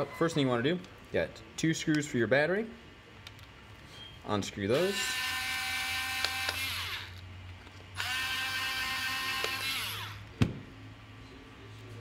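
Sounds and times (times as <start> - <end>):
electric screwdriver running: 4.8 - 7.2, 8.0 - 10.2.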